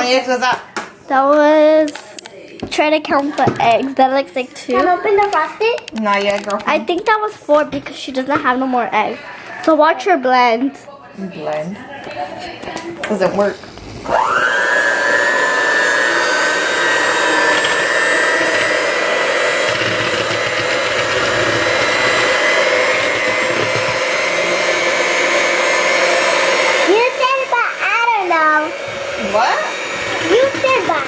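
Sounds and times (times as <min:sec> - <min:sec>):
child's voice: 0:01.1 - 0:05.9, 0:26.9 - 0:28.8, 0:30.3 - 0:31.0
electric hand mixer whining: 0:13.8 - 0:31.0.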